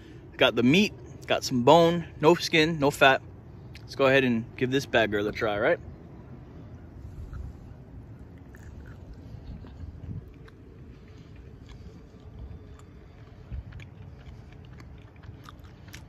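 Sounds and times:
low steady rumble: 0.0 - 16.0
person chewing: 6.9 - 16.0
wet mouth clicks: 7.1 - 16.0.

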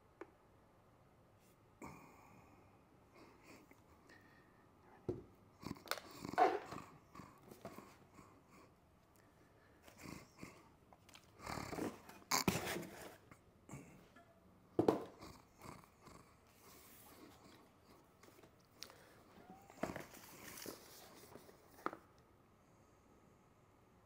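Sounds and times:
knocks on a table: 14.8 - 15.1
rustling: 18.2 - 22.0.

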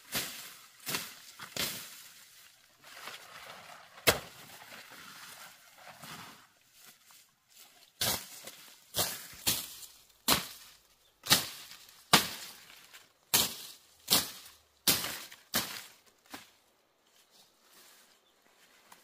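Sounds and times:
machete chopping grass and bamboo: 0.1 - 2.0, 4.0 - 4.4, 8.0 - 16.5.

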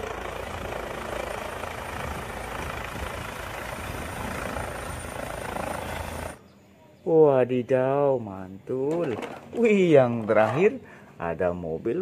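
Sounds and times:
helicopter rotor and engine: 0.0 - 6.4.

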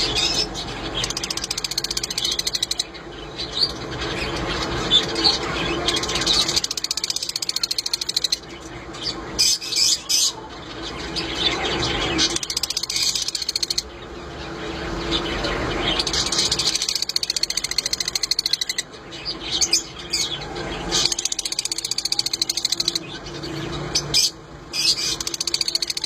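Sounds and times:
lovebirds twittering: 0.0 - 26.0.

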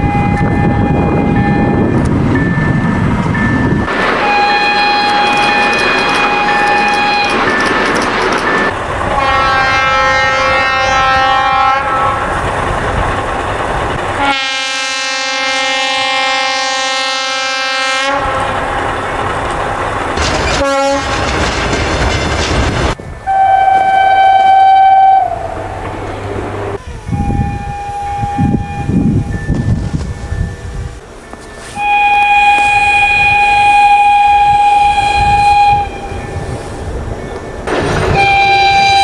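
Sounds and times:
locomotive air horn blasts: 0.0 - 2.0, 4.2 - 7.5, 9.1 - 12.3, 14.2 - 18.6, 20.5 - 21.2, 23.3 - 25.6, 27.1 - 29.3, 31.6 - 36.2, 38.1 - 39.0
train rumble: 0.0 - 39.0.

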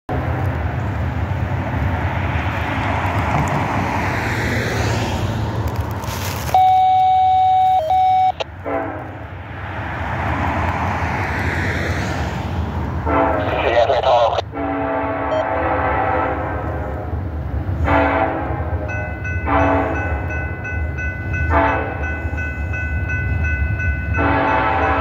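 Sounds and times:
road traffic passing: 0.1 - 25.0
loud electronic beep: 6.6 - 8.4.

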